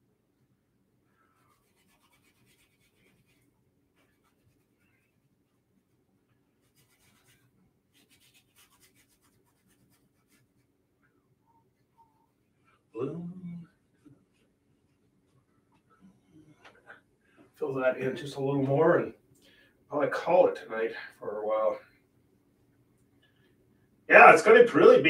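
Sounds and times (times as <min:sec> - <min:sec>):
low steady hum: 0:00.0 - 0:25.0
paintbrush scratching on canvas: 0:01.3 - 0:10.8.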